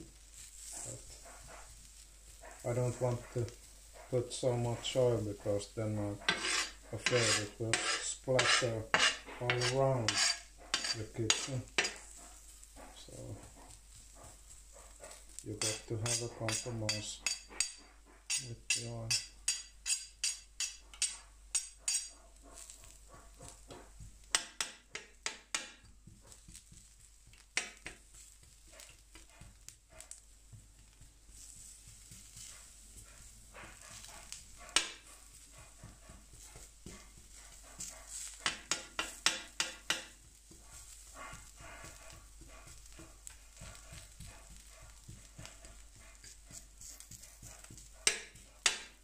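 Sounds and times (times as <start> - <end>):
faint sizzle: 0.0 - 48.9
spatula scraping metal griddle: 0.3 - 49.0.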